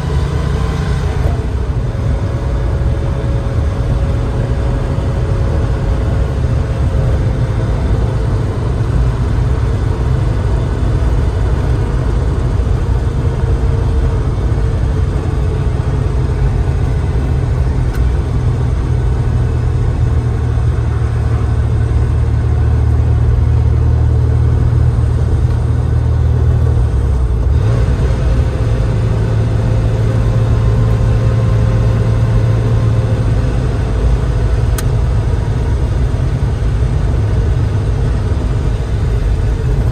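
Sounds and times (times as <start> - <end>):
car engine cruising: 0.0 - 39.9
road noise: 0.0 - 39.9.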